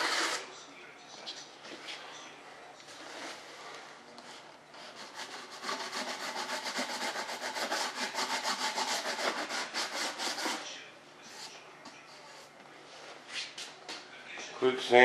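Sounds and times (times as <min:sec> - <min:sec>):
sandpaper rubbing: 0:00.0 - 0:00.4, 0:04.9 - 0:10.6
sandpaper strokes: 0:04.9 - 0:10.6.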